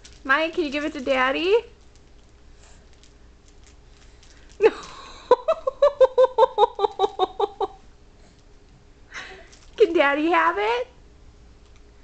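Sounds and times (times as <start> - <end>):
high-pitched laughter: 4.6 - 7.8.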